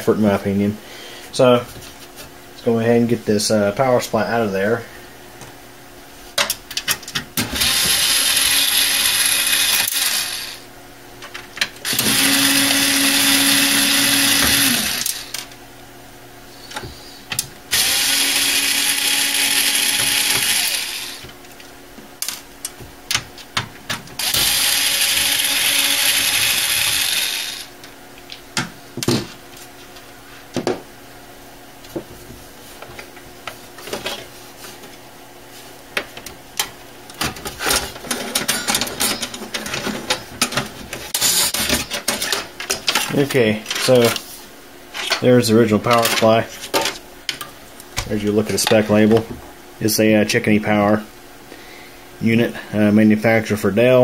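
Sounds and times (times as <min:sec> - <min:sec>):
power driver whirring: 0:07.4 - 0:10.6, 0:11.8 - 0:15.5, 0:17.7 - 0:21.4, 0:24.2 - 0:27.8.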